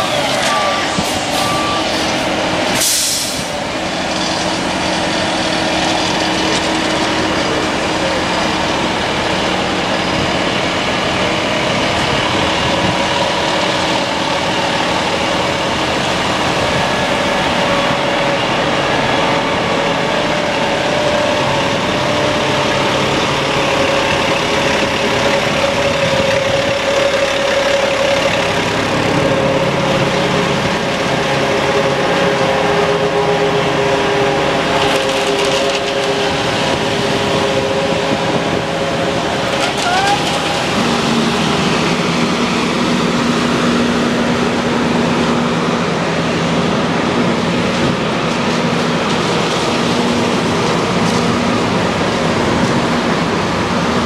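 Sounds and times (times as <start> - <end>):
diesel engine idling: 0.0 - 54.0
hiss burst: 1.0 - 3.6.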